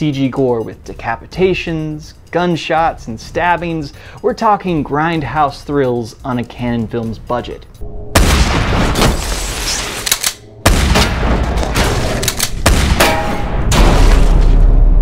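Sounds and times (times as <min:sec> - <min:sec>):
dense gunfire: 0:08.2 - 0:09.2, 0:10.6 - 0:14.8
sharp crashing impacts: 0:10.6 - 0:15.0.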